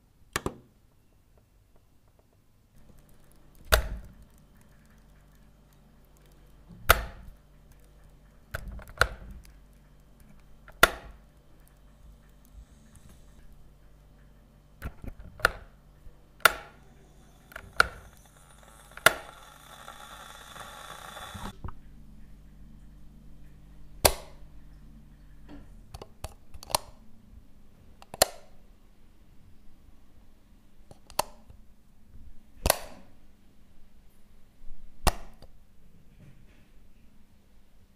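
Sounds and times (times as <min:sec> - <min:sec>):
low hum: 0:02.8 - 0:26.0
power switch clicks: 0:16.4 - 0:16.8.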